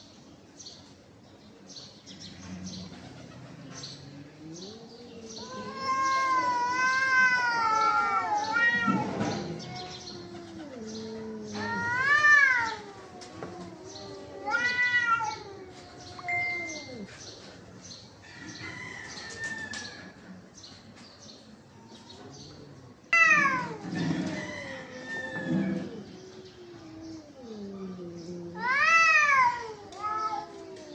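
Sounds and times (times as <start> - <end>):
cats caterwauling: 4.3 - 17.7, 23.0 - 30.9.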